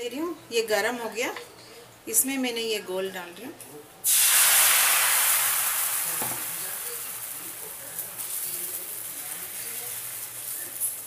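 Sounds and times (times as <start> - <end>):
batter sizzling on a griddle: 4.0 - 11.0.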